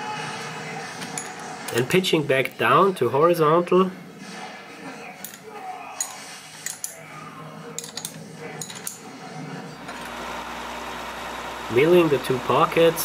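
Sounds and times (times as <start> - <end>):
wrench clicking on metal bolts: 6.0 - 7.0, 7.8 - 9.0
low machine hum: 9.7 - 13.0.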